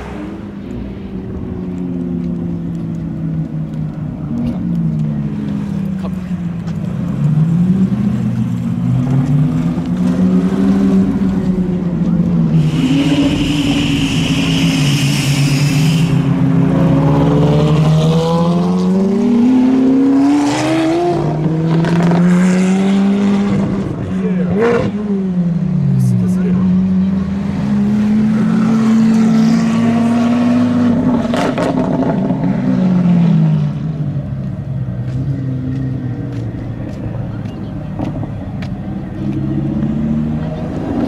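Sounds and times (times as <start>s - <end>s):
car engines revving: 0.0s - 41.0s
hiss: 12.6s - 16.3s.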